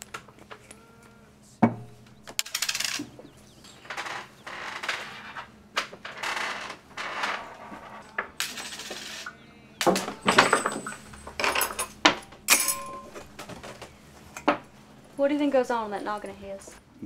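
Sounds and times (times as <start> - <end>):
utensils scraping tin plates: 7.1 - 13.8.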